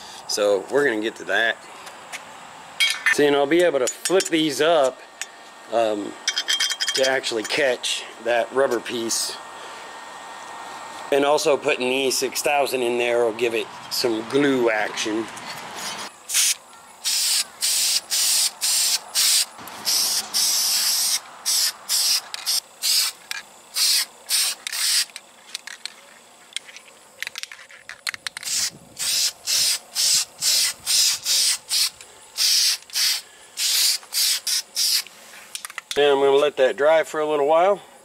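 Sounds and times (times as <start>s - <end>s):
spray paint can hissing: 15.8s - 25.2s, 28.3s - 35.2s.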